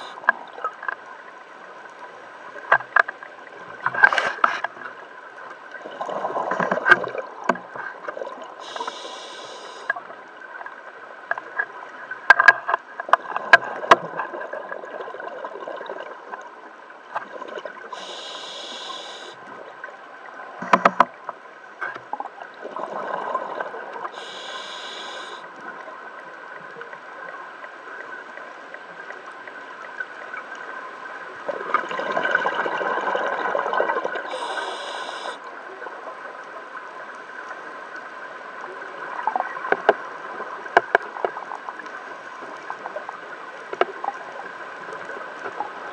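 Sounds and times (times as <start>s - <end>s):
hissing regulator inhalation: 8.6s - 9.9s, 18.0s - 19.4s, 24.2s - 25.4s, 34.3s - 35.4s
exhaled bubbles rushing: 31.5s - 34.3s.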